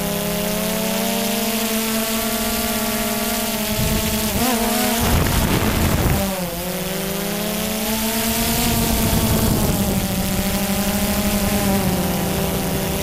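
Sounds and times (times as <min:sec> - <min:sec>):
drone propellers whining: 0:00.0 - 0:13.0
wind buffeting microphone: 0:03.6 - 0:06.6, 0:08.2 - 0:13.0.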